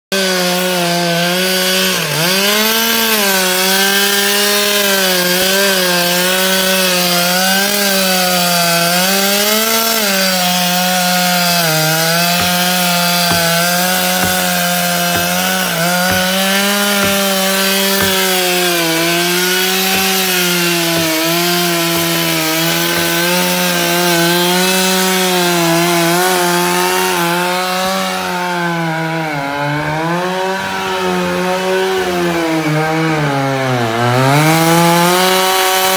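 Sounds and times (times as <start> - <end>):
chainsaw cutting log: 0.1 - 35.9.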